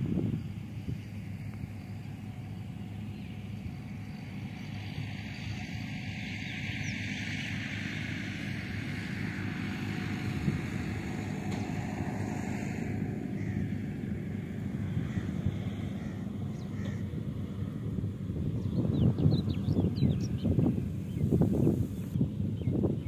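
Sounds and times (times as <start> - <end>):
distant combine harvester engine drone: 0.0 - 23.0.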